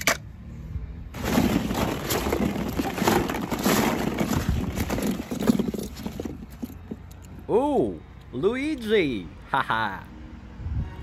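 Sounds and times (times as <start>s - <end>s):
plastic balls clacking: 1.2s - 7.3s.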